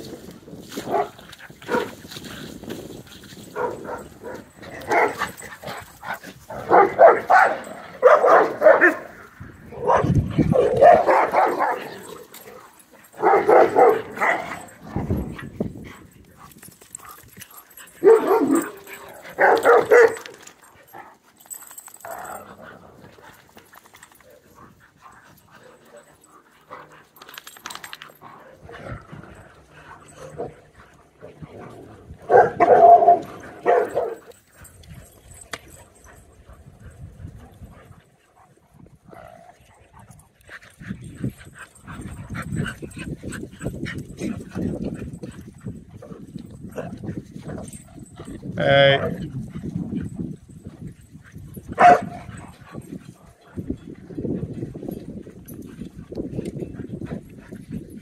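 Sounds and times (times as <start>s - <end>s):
dogs barking: 0.8s - 2.0s, 3.5s - 5.7s, 6.4s - 15.2s, 17.7s - 21.1s, 31.7s - 34.4s, 51.8s - 52.9s.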